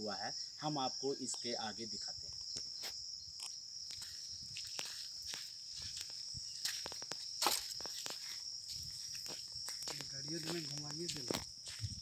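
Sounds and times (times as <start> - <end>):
insect chirring: 0.0 - 12.0
footsteps crunching over rubble: 2.8 - 12.0.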